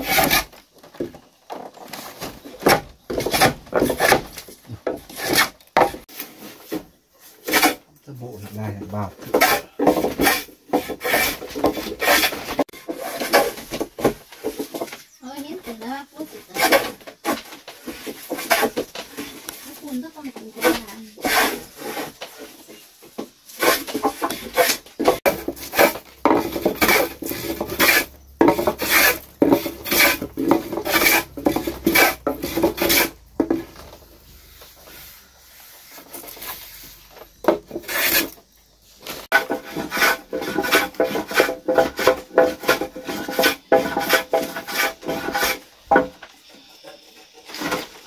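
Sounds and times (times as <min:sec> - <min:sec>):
hand saw cutting wood: 0:00.0 - 0:00.7, 0:02.6 - 0:06.5, 0:07.3 - 0:07.9, 0:08.5 - 0:14.8, 0:15.4 - 0:22.5, 0:23.5 - 0:33.8, 0:37.5 - 0:38.4, 0:39.3 - 0:46.1.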